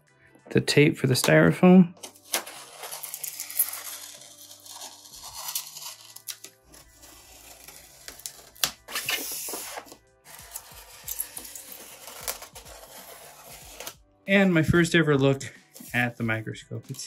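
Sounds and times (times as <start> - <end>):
quiet background music: 0.0 - 17.0
knife slitting packing tape: 2.2 - 14.0.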